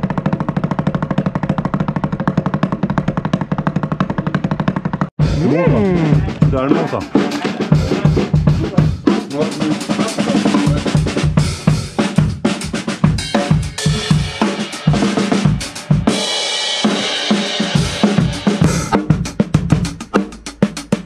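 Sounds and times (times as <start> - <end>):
bass drum and snare hits: 0.0 - 21.0.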